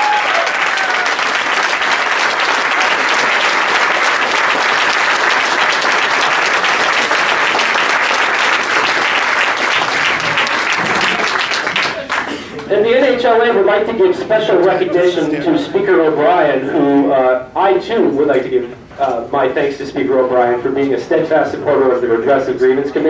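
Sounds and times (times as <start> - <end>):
audience applauding: 0.0 - 12.7.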